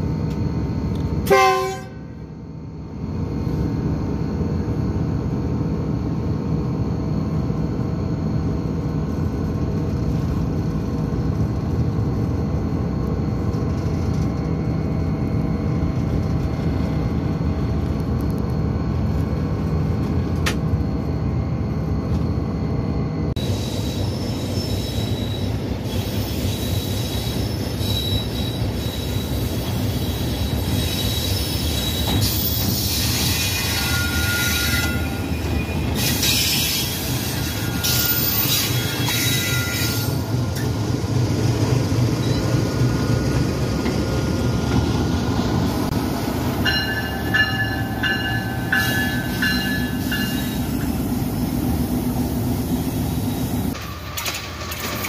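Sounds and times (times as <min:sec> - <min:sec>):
short high-pitched squeals: 0:23.4 - 0:40.3
rail yard hiss: 0:23.4 - 0:55.0.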